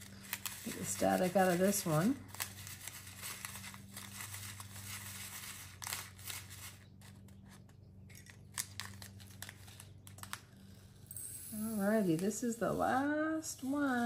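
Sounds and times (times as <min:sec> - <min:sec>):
plastic bag crinkling: 0:00.0 - 0:10.5
faint electrical hum: 0:00.0 - 0:14.0
small clicks and crackles: 0:02.3 - 0:10.9.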